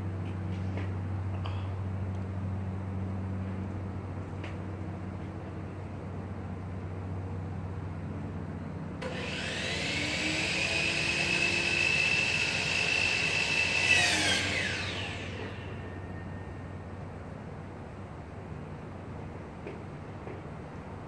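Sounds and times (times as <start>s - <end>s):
power tool motor whining: 9.0s - 16.0s.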